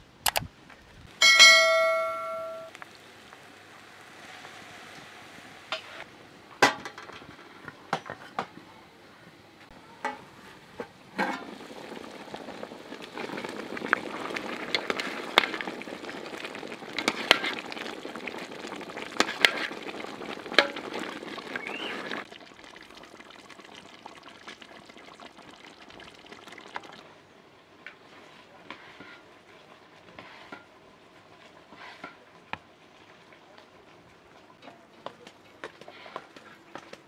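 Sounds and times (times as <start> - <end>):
faint steady hiss: 0.0 - 37.0
stew bubbling: 9.7 - 37.0.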